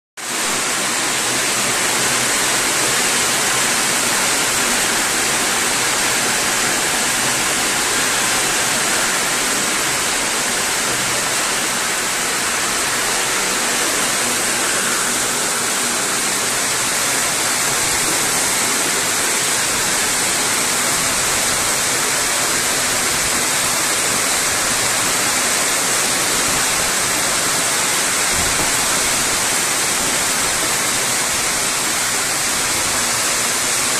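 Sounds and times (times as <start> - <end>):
hail and rain on pavement: 0.3 - 33.9.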